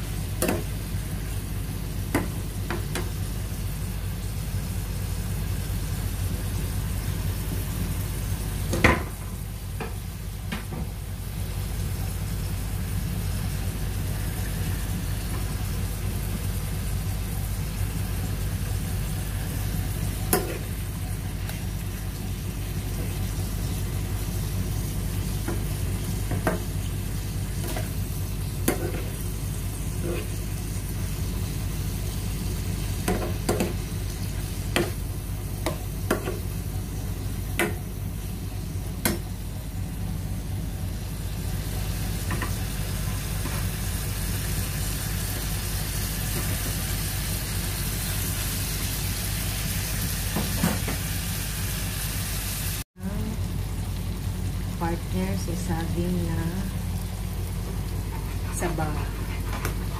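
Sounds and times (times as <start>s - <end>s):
seafood sizzling in a pan: 11.5s - 38.8s, 41.0s - 52.8s.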